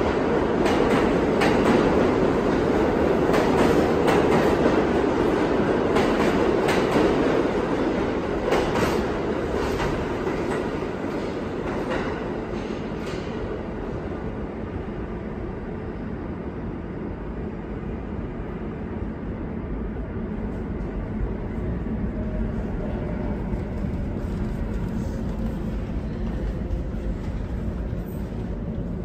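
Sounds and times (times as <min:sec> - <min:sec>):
subway train rumble: 0:00.0 - 0:29.0.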